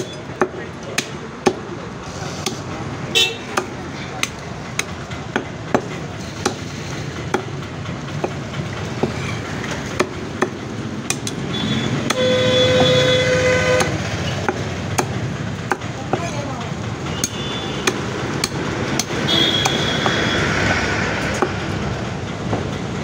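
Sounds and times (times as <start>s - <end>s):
traffic noise: 0.0s - 23.0s
vehicle horn: 3.1s - 3.5s, 11.5s - 14.0s, 19.2s - 20.4s
cleaver chopping on wooden block: 17.2s - 20.2s.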